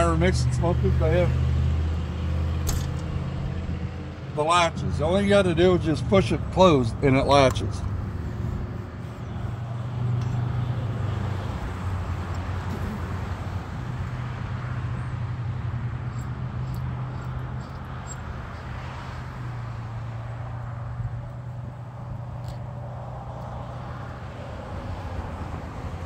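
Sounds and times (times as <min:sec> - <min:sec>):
engine idling hum: 0:00.0 - 0:24.8
metal latch clicks: 0:02.6 - 0:03.6.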